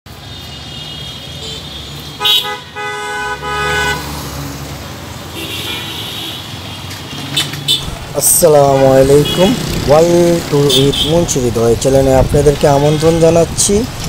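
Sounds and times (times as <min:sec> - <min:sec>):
traffic engine rumble: 0:00.1 - 0:14.0
vehicle horns honking: 0:00.3 - 0:04.2, 0:05.3 - 0:08.1, 0:09.1 - 0:09.6, 0:10.6 - 0:11.3.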